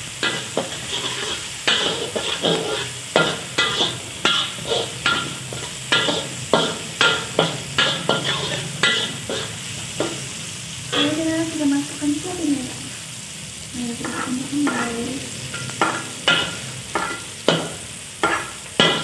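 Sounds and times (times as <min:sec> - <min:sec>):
metal spatula scraping a wok: 0:00.0 - 0:11.6, 0:13.8 - 0:19.0
food sizzling in hot oil: 0:00.0 - 0:19.0.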